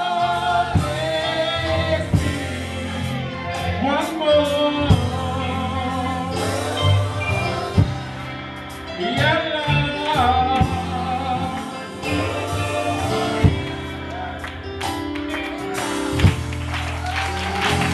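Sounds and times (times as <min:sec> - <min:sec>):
man singing into a microphone: 0:00.0 - 0:07.8, 0:08.9 - 0:14.0
instrumental accompaniment: 0:00.0 - 0:17.9.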